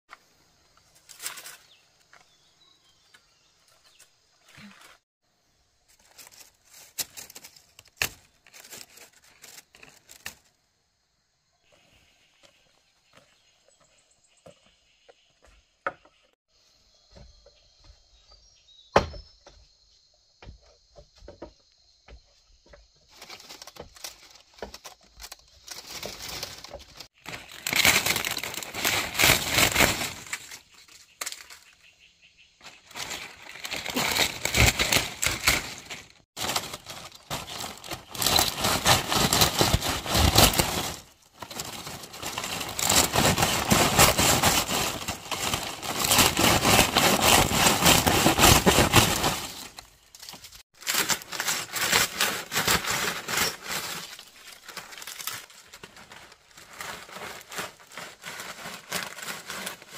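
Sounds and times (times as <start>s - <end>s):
rustling and crackling: 5.8s - 10.6s, 22.2s - 31.9s, 32.6s - 59.9s.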